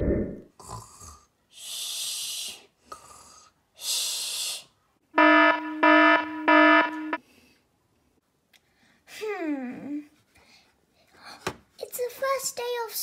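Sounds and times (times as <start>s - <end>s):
electronic alarm beeping: 5.2s - 7.2s.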